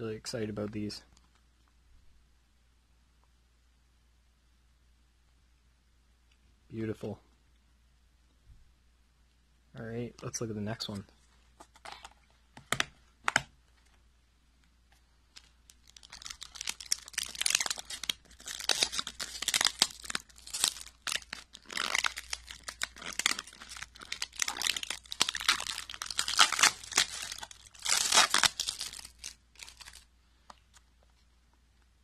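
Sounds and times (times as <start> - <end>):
plastic film crinkling and tearing: 15.3 - 30.1.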